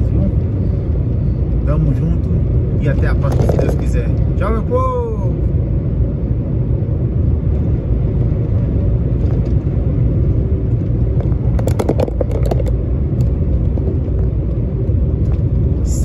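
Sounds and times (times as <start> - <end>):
truck engine and road rumble: 0.0 - 16.0.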